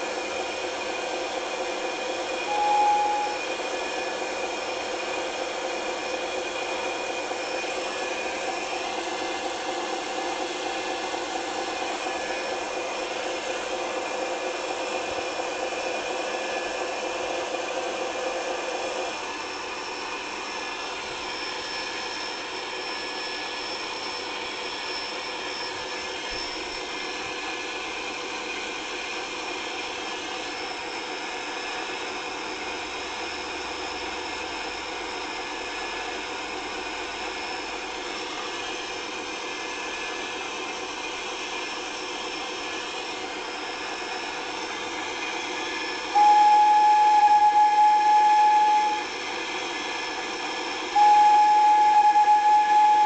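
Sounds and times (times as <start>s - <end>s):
locomotive running hum and hiss: 0.0s - 53.0s
locomotive whistle blast: 2.4s - 4.1s, 46.1s - 49.3s, 50.9s - 53.0s.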